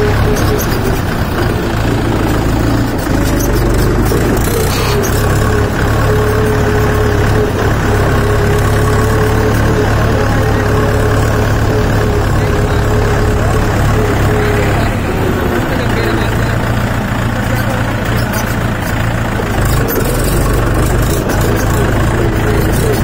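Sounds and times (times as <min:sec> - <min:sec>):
tractor diesel engine running: 0:00.0 - 0:23.0.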